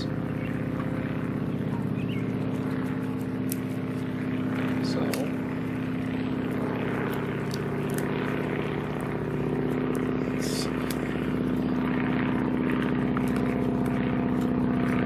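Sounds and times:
propeller airplane droning overhead: 0.0 - 15.0
dry wood snapping: 3.1 - 5.5, 6.7 - 9.2, 9.8 - 11.3, 12.7 - 15.0.

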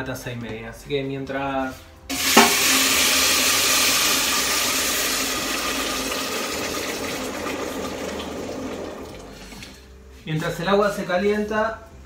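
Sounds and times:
running water rushing: 2.1 - 9.8.

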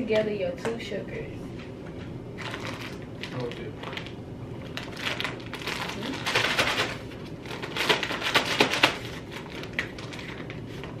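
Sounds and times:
plastic bag crinkling: 2.4 - 11.0.

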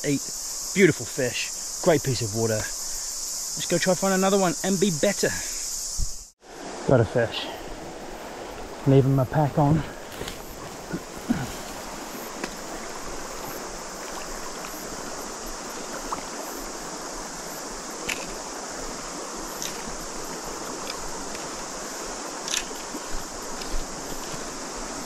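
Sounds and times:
high hiss: 0.0 - 25.0
river running over stones: 6.4 - 25.0
faint ticks: 18.0 - 18.4, 20.8 - 21.5, 22.4 - 22.9, 23.5 - 24.4.

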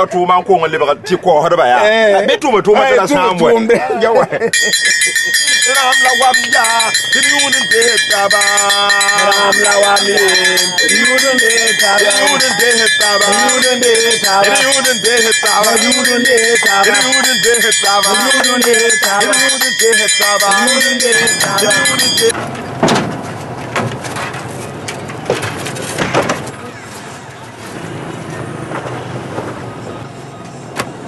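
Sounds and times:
metal bell rhythm: 4.5 - 22.4
person singing: 5.6 - 22.4.

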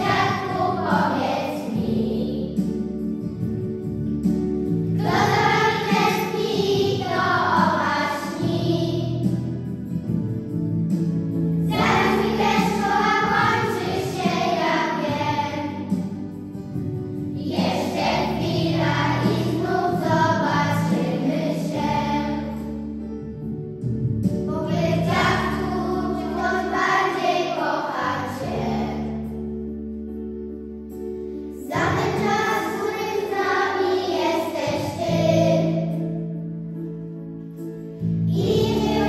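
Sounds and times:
children singing in unison: 0.0 - 2.6, 5.0 - 9.4, 11.7 - 15.9, 17.4 - 22.8, 24.6 - 29.1, 31.7 - 36.0, 38.3 - 39.0
instrumental backing track: 0.0 - 39.0.

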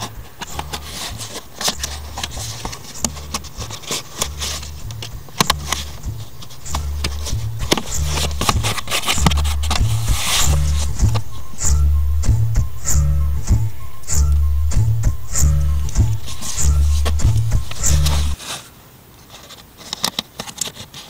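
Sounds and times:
fingers scraping plastic trim: 0.0 - 11.2, 15.9 - 18.7, 19.3 - 21.0
low pulsing bass: 4.3 - 18.4.

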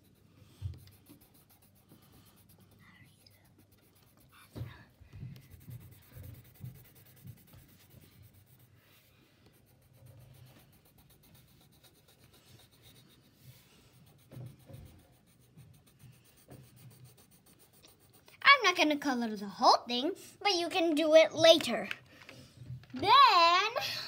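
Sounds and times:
pencil scratching on paper: 0.0 - 19.1.

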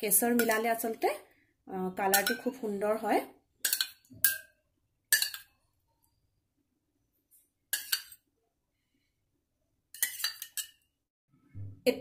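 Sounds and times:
metal spoon clinking against bowl: 0.3 - 0.7, 2.1 - 2.6, 3.6 - 5.6, 7.8 - 8.2, 10.0 - 10.8.

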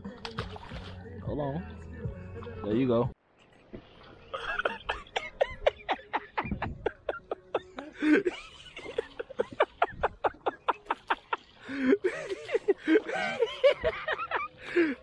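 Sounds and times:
man laughing in rhythmic bursts: 4.3 - 15.0.

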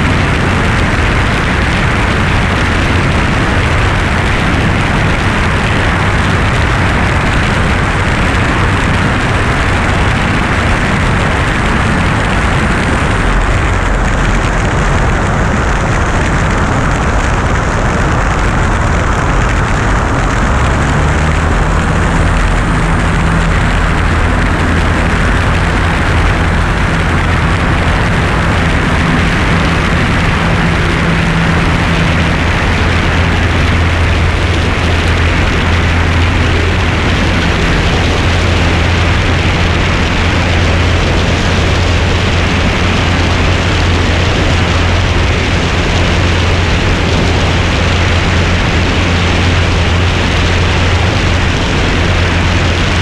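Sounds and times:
light aircraft engine drone: 0.0 - 53.0
wind rushing: 0.0 - 53.0.

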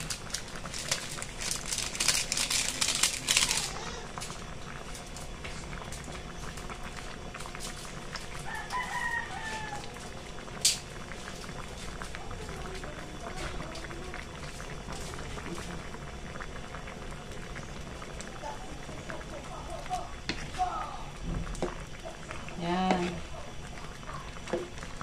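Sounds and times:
seasoning pattering from sachet: 0.0 - 5.4, 6.8 - 10.0
rooster crowing: 8.4 - 10.2.

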